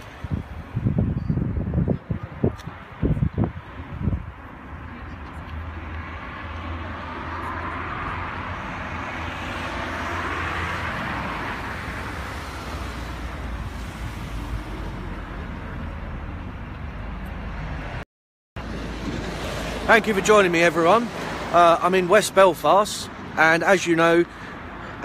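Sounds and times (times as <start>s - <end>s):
road traffic rumble: 0.0s - 18.0s, 18.6s - 25.0s
passing vehicle rushing: 5.6s - 16.5s, 18.6s - 22.8s.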